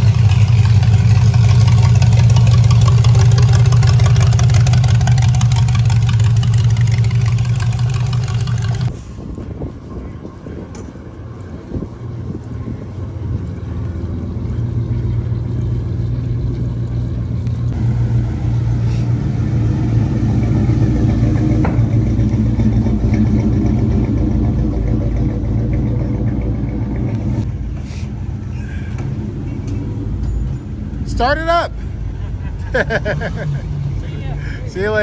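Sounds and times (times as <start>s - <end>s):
car engine running: 0.0s - 8.9s, 11.9s - 27.7s.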